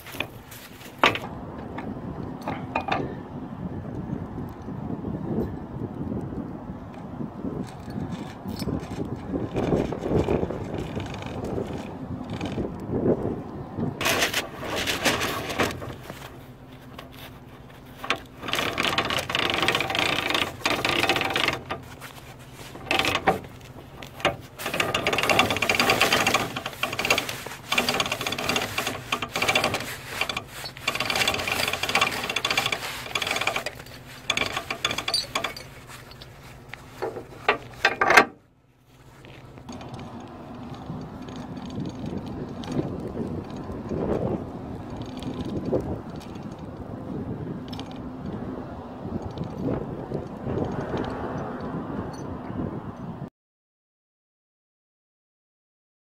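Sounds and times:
winch reeling in strap: 0.0 - 1.4, 7.6 - 12.9, 14.0 - 38.4, 39.0 - 48.4.

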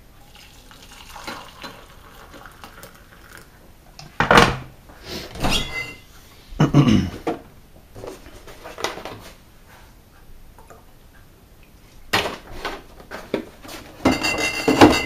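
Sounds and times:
milk pouring into mug: 0.2 - 3.6
kitchen items clattering: 5.3 - 6.0, 12.2 - 15.0.

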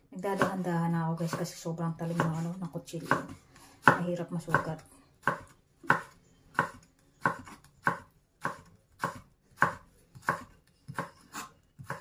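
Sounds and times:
knife slicing on a wooden board: 5.3 - 12.0.

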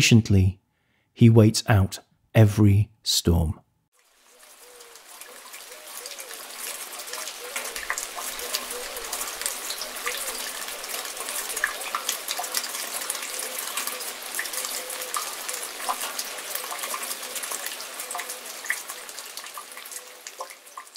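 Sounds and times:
steady rainfall: 4.0 - 20.9.

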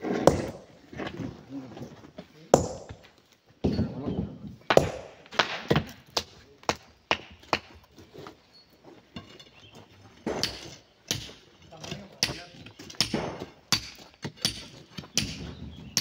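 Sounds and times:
sledgehammer striking boulder: 0.0 - 0.8, 2.6 - 3.0, 4.7 - 7.8.

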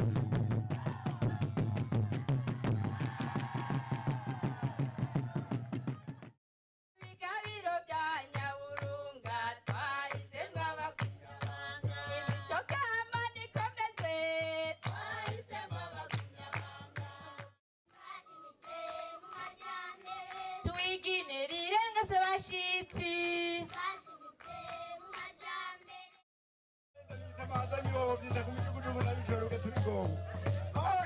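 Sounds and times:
steady drum beat: 0.0 - 6.3, 27.0 - 31.0
group singing: 0.3 - 5.6, 9.3 - 12.6, 14.1 - 21.3, 23.6 - 26.2.

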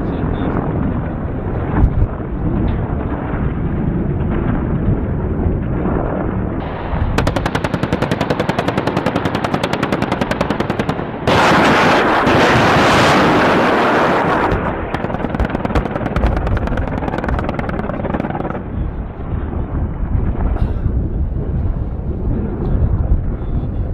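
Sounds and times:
rockets launching: 0.0 - 23.3
rapid gunfire: 7.1 - 18.6.

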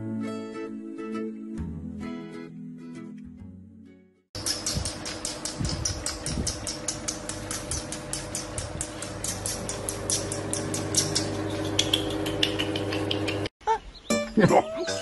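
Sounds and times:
puppy claws clicking on tile: 4.4 - 13.5.

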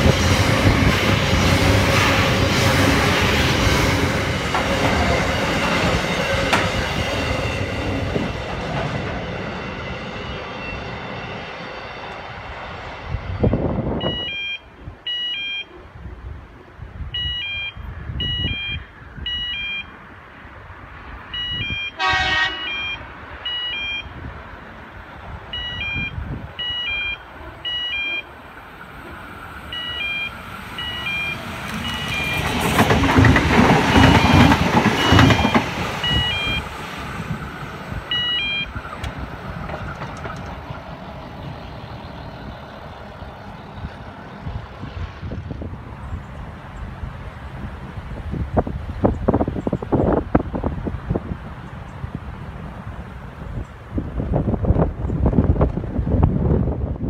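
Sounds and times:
train wheel and motor noise: 0.0 - 57.0
level crossing warning bell: 14.0 - 15.8, 17.2 - 20.0, 21.3 - 24.2, 25.5 - 28.4, 29.6 - 32.8, 33.7 - 36.8, 37.4 - 38.9
train horn toot: 21.6 - 23.1.

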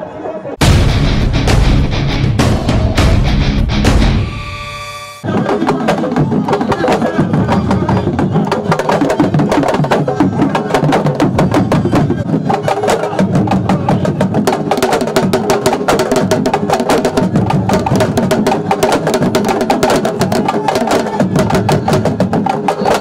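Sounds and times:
fast hand and stick drumming: 5.2 - 23.0.

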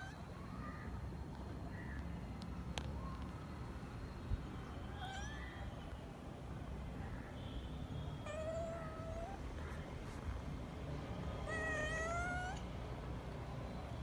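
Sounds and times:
kitten meowing: 11.5 - 12.6.

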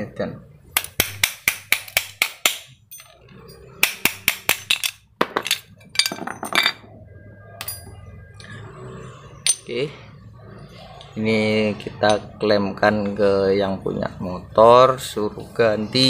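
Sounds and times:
metal parts clinking on concrete: 2.1 - 3.7, 4.5 - 6.8, 7.6 - 7.9, 9.4 - 9.7.

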